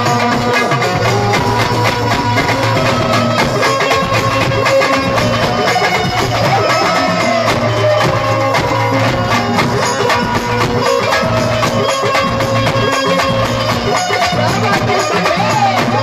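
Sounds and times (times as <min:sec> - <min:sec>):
plucked banjo melody: 0:00.0 - 0:16.0
steady percussion beat: 0:00.0 - 0:16.0.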